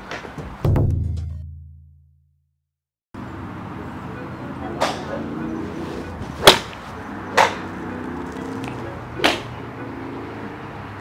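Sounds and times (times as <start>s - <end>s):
golf club striking ball: 6.4s - 7.8s, 8.6s - 9.5s.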